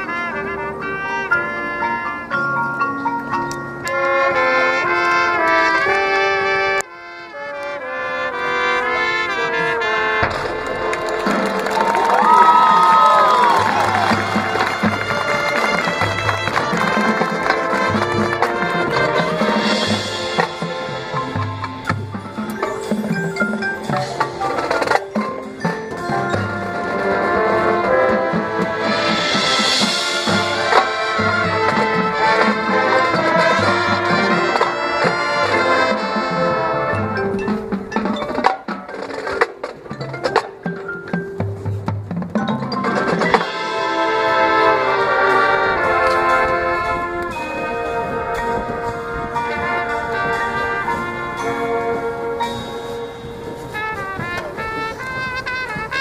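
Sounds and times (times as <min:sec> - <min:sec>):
brass chords: 0:00.0 - 0:38.0, 0:42.8 - 0:56.0
drums: 0:00.0 - 0:56.0
mallet percussion: 0:10.2 - 0:54.6.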